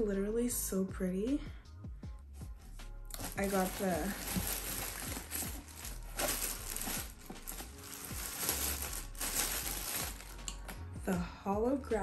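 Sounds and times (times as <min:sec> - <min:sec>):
plastic bag crinkling: 0:03.2 - 0:10.6.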